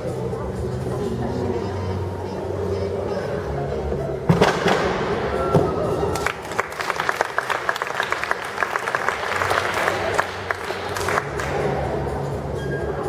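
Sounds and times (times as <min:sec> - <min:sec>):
audience applauding: 0:06.2 - 0:11.7.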